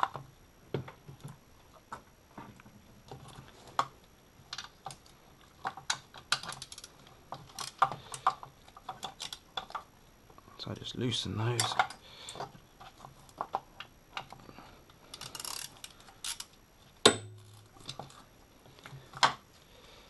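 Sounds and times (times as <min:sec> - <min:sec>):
hand ratchet clicking: 0:15.1 - 0:16.5.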